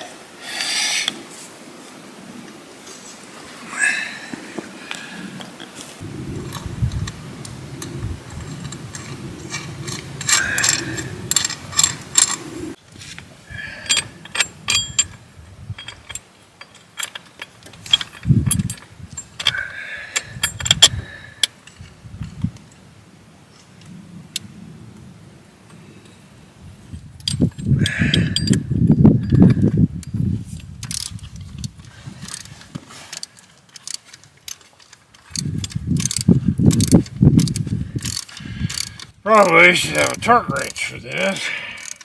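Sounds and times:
metal clinks: 0:07.8 - 0:12.5, 0:13.6 - 0:21.9, 0:27.2 - 0:42.0
wrench ratcheting clicks: 0:08.3 - 0:12.5, 0:13.8 - 0:19.6, 0:20.2 - 0:21.6, 0:27.2 - 0:28.6, 0:29.2 - 0:32.6, 0:33.2 - 0:39.1, 0:41.8 - 0:42.0.

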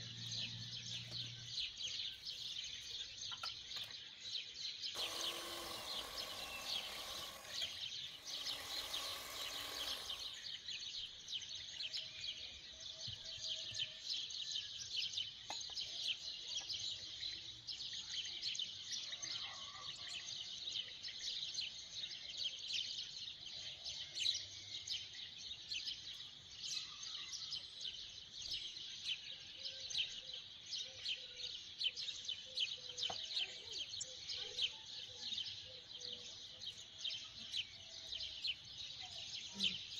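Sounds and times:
electric hand mixer running: 0:05.0 - 0:10.5.

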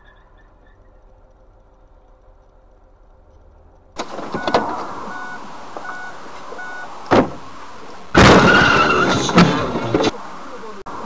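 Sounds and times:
faint street hum: 0:00.0 - 0:11.0
road and engine noise inside car: 0:00.0 - 0:11.0
short electronic beeps: 0:04.4 - 0:06.9
loud thump: 0:07.1 - 0:07.5, 0:08.1 - 0:10.1.

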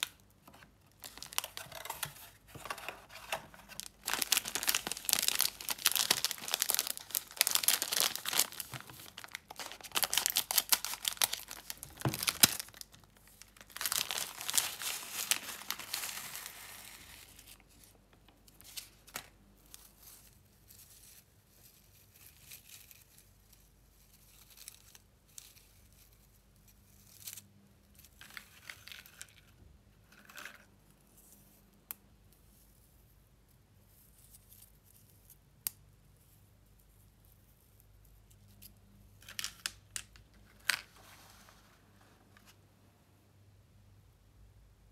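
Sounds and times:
plastic wrapper crinkling and tearing: 0:00.0 - 0:21.2.

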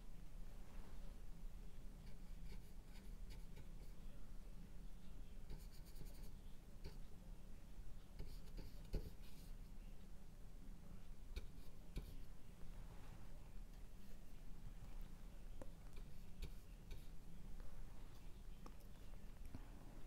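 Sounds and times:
low steady hum: 0:00.0 - 0:20.0
brush strokes on painting panel: 0:11.3 - 0:18.6.

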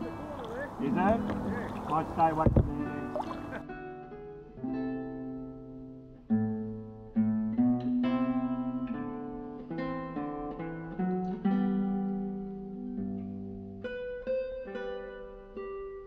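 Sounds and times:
acoustic guitar picking: 0:00.0 - 0:16.0.

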